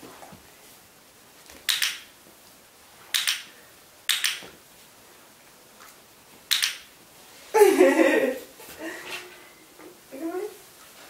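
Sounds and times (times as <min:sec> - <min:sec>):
dog-training clicker clicking: 0:01.7 - 0:02.0, 0:04.1 - 0:04.4, 0:06.5 - 0:06.8.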